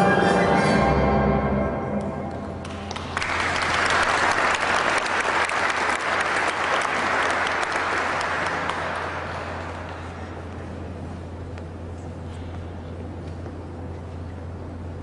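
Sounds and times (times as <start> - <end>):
steady low hum: 0.0 - 15.0
audience applauding: 2.6 - 10.5.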